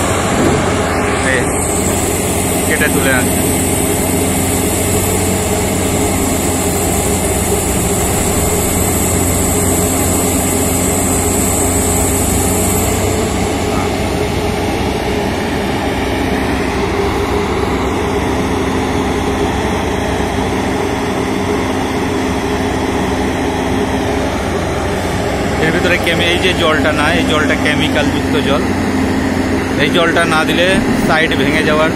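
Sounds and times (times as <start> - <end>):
diesel engine running: 0.0 - 31.9
high whine sliding down: 0.0 - 31.9.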